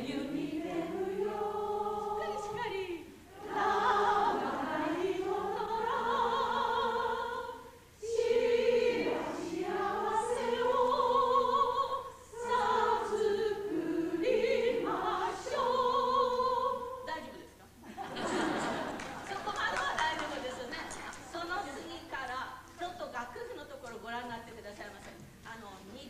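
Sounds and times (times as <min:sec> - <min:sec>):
soprano voice with vibrato: 0:00.0 - 0:17.6
women singing together: 0:00.0 - 0:21.9.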